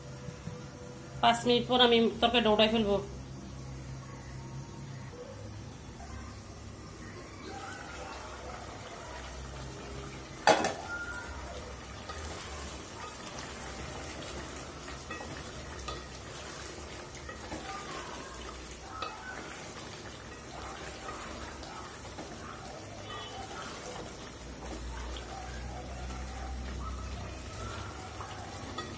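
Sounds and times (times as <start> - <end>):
curry frying gently: 0.0 - 28.9
metal pot lid clank: 10.4 - 10.9
wooden spatula scraping a pot: 11.9 - 28.9.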